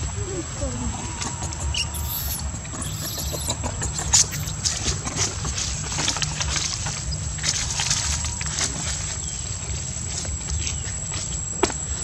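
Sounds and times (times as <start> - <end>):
baby monkey squeaking: 1.0 - 4.8
steady high tone: 1.8 - 4.6.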